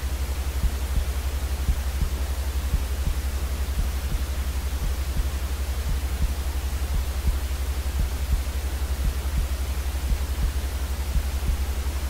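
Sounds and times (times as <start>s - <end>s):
white noise hiss: 0.0s - 12.0s
soft low thuds: 0.6s - 12.0s
low rumble: 2.7s - 10.6s.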